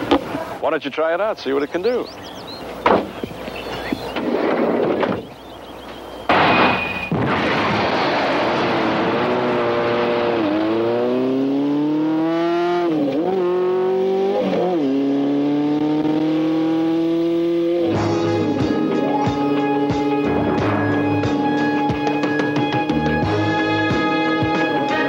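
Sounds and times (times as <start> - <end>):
motorcycle engine accelerating: 8.2 - 25.0.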